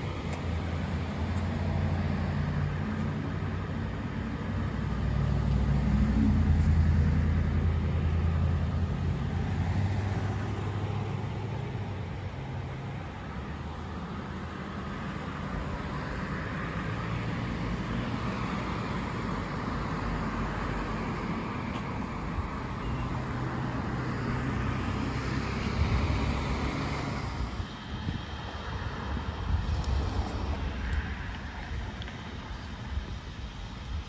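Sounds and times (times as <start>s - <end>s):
vehicle passing on street: 0.0s - 34.0s.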